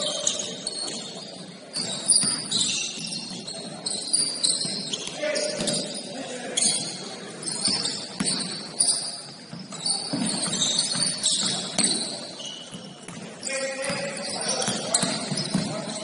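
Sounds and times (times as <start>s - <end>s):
sneakers squeaking: 0.0s - 16.0s
basketball bouncing on court: 1.8s - 3.6s, 7.6s - 8.7s, 9.5s - 16.0s.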